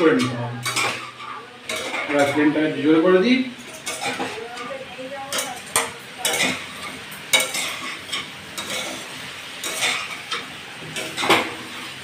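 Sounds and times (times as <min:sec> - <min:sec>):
low frying sizzle: 0:00.0 - 0:12.0
metal spatula clacking on pan: 0:00.2 - 0:02.4, 0:05.3 - 0:09.0, 0:09.6 - 0:11.5.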